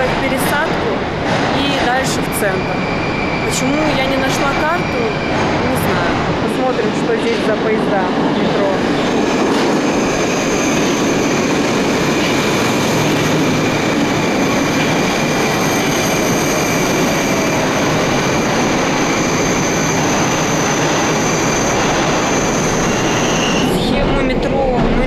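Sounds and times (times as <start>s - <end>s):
metro train wheels rumbling: 0.0s - 25.0s
high-pitched wheel squeal: 2.3s - 5.5s, 9.8s - 13.3s, 14.3s - 23.9s.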